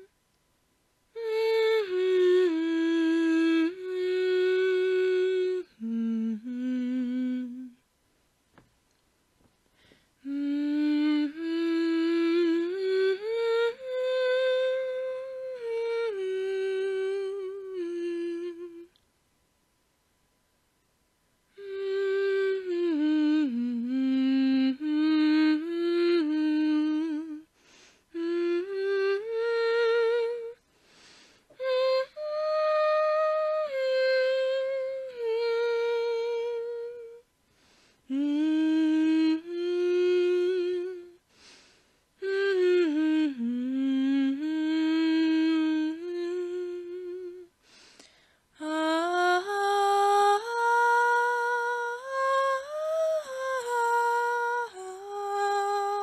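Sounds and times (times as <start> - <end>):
woman humming: 1.2 - 7.8, 10.2 - 19.0, 21.5 - 27.5, 28.1 - 37.3, 38.1 - 41.6, 42.2 - 47.8, 48.6 - 56.0
breaths: 9.6 - 10.2, 27.5 - 28.2, 30.6 - 31.6, 37.4 - 38.1, 41.2 - 42.2, 47.6 - 48.6.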